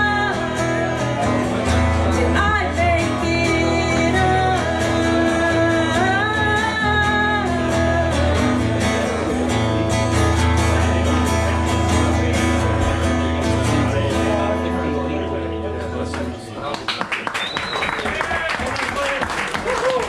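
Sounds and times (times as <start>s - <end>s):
woman singing: 0.0s - 8.8s
acoustic guitar strumming: 0.0s - 16.7s.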